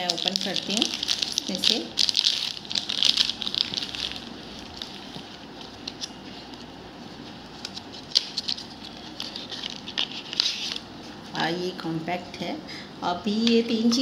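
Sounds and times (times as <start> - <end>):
plastic packaging crinkling: 0.0 - 10.9.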